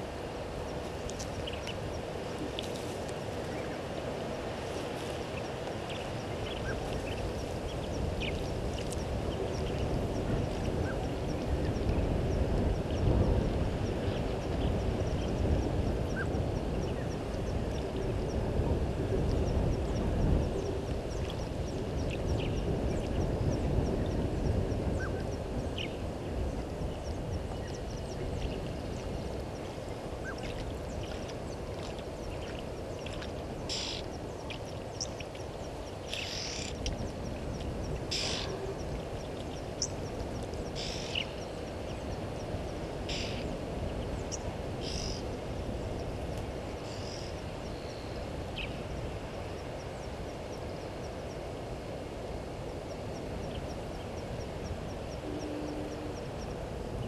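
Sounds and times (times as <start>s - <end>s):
short high bird calls: 33.7s - 34.0s.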